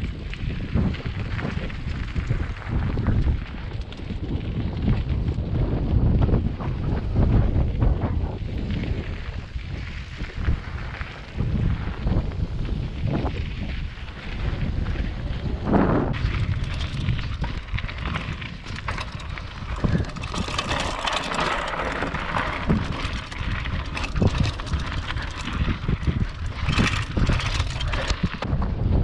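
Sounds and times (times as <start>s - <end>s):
bike rattling and knocking: 0.0s - 9.3s, 10.7s - 29.0s
wind rumbling on microphone: 0.0s - 29.0s
tyres crunching on loose stones: 8.5s - 28.7s.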